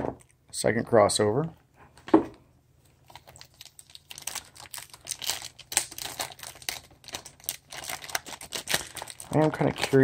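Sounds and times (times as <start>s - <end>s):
plastic bags crinkling: 3.0s - 10.0s.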